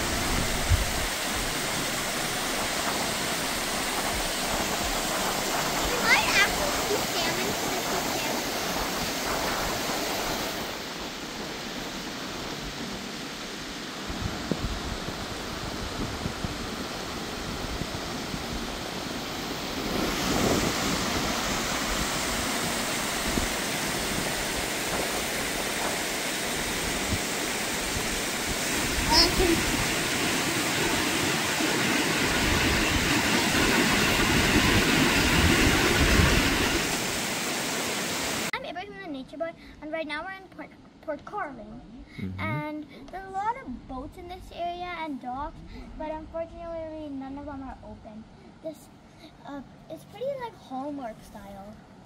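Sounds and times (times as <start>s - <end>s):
waterfall roaring: 0.0s - 38.5s.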